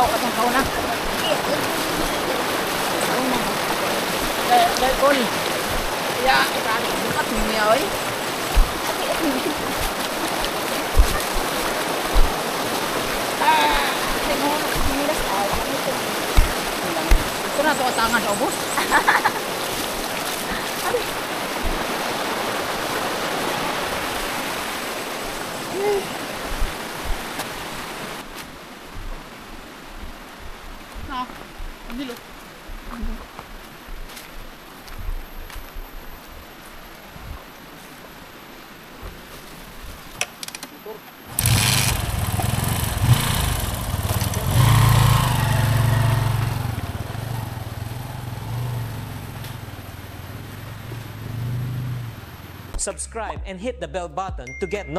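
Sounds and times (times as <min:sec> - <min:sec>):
water rushing over rocks: 0:00.0 - 0:33.3, 0:37.0 - 0:52.8
dull low thumps: 0:07.4 - 0:10.3, 0:10.9 - 0:13.2, 0:13.8 - 0:17.7, 0:26.5 - 0:27.3, 0:52.8 - 0:54.9
motorcycle engine revving: 0:41.3 - 0:52.7.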